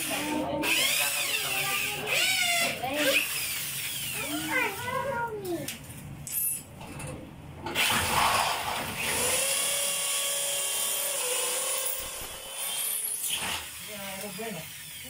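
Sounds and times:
electric drill whine: 9.0 - 15.0.

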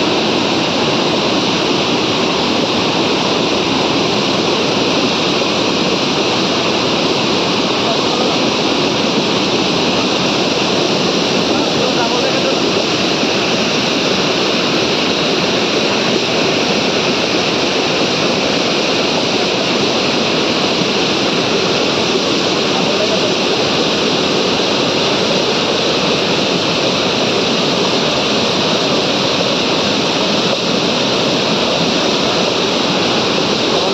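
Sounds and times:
stream rushing over boulders: 0.0 - 33.9.

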